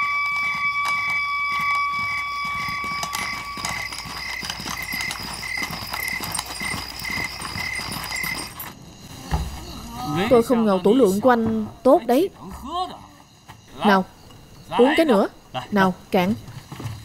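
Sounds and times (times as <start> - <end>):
footsteps on dirt path: 0.0 - 8.8
steady high tone: 0.0 - 11.0.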